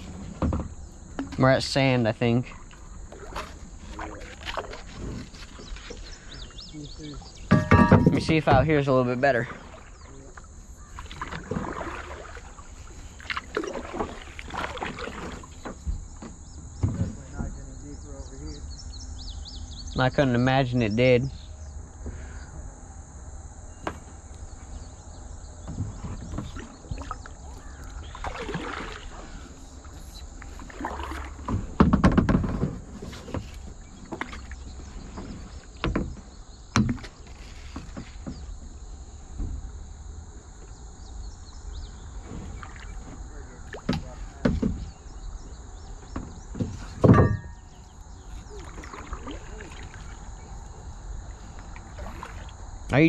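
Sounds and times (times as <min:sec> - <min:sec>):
paddle splashing water: 0:02.5 - 0:16.4, 0:25.7 - 0:38.8, 0:41.9 - 0:52.7
paddle knocking plastic kayak: 0:30.6 - 0:39.7, 0:42.4 - 0:50.2.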